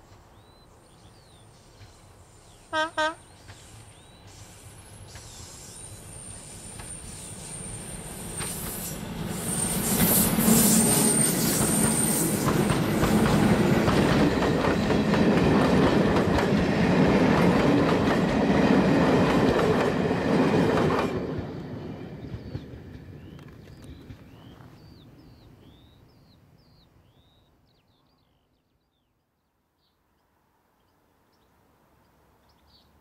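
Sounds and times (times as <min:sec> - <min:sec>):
high wheel squeal: 0:05.4 - 0:12.4
train wheels clattering: 0:06.7 - 0:21.6.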